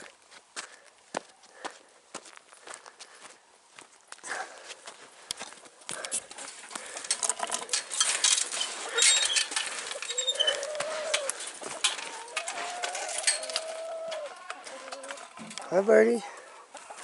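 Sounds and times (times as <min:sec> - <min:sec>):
footsteps on dry dirt: 0:00.0 - 0:07.2, 0:07.8 - 0:17.0
hens clucking: 0:05.8 - 0:17.0.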